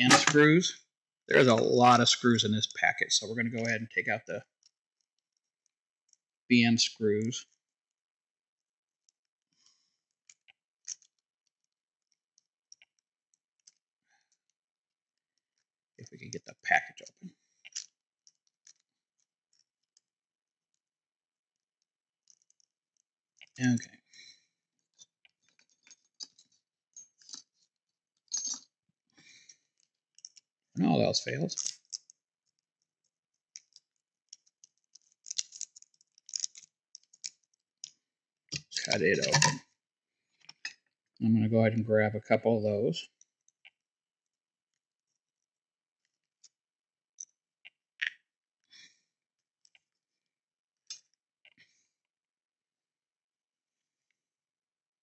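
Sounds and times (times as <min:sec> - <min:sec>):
small screws clicking: 0:31.6 - 0:38.0.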